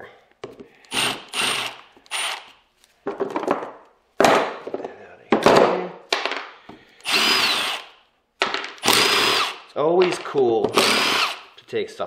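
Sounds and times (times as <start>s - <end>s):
cordless drill motor whine: 0.9s - 2.4s, 7.0s - 7.9s, 8.8s - 9.6s, 10.8s - 11.4s.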